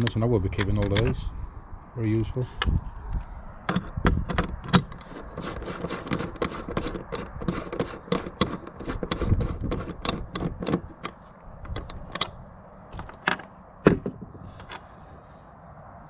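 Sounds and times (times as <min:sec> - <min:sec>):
sharp knocks: 0:13.0 - 0:14.4.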